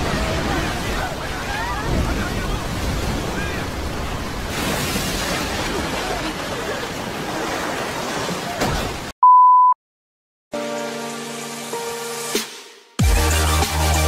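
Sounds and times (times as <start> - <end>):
rushing floodwater: 0.0 - 9.1
steady beep tone: 9.2 - 9.8.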